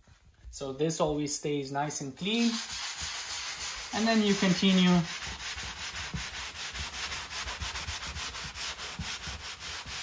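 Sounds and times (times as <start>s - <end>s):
wet sponge scrubbing a wall: 2.2s - 10.0s.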